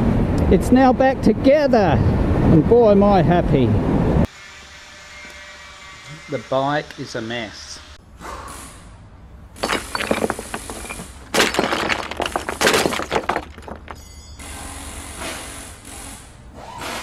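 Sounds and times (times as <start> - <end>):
stone wall cracking: 9.6 - 14.0
crumbling crash: 9.6 - 14.1.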